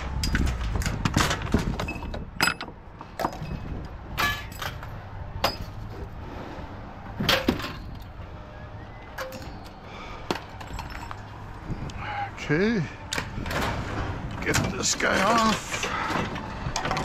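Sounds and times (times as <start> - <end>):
scrap metal clanking: 0.2 - 6.6.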